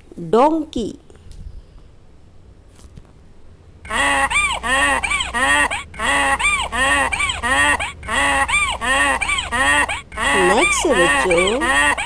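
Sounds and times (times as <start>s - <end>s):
donkey braying: 3.8s - 12.0s.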